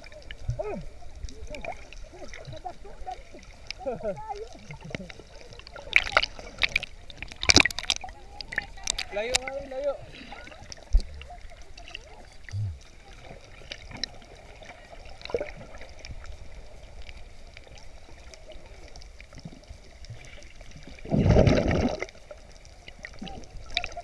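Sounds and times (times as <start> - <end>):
underwater sloshing and bubbling: 0.0 - 24.0
small clicks: 5.9 - 9.5.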